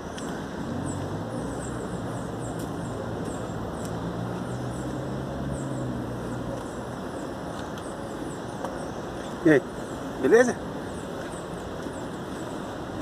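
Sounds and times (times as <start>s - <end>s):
street traffic: 0.0s - 13.0s
vehicle engine hum: 0.0s - 13.0s.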